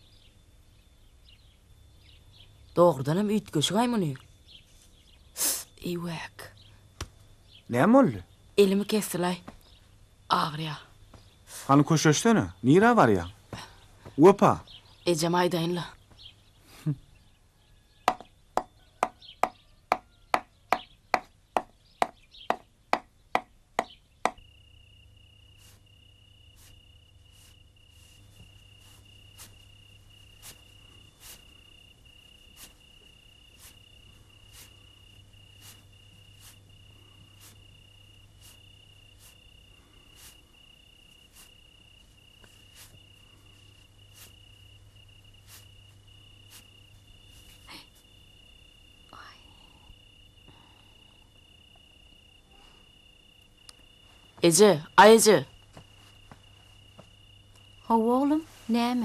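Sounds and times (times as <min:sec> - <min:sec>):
crickets chirping: 0:00.0 - 0:59.0
faint ticks: 0:53.6 - 0:53.8.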